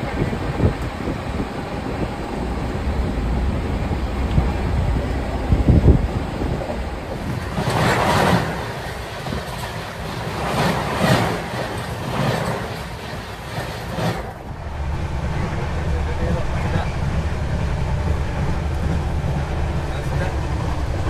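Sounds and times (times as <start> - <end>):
rattling rush: 0.0 - 21.0
train wheels rumbling on rails: 0.0 - 21.0.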